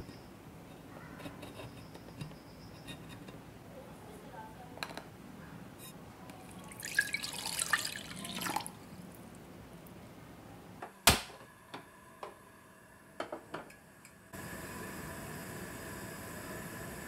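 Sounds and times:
milk pouring into saucepan: 6.4 - 8.8
steady hiss: 8.8 - 17.0.

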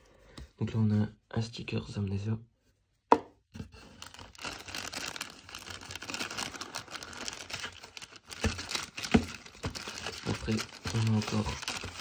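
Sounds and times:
plastic bag crinkling: 3.8 - 12.0.

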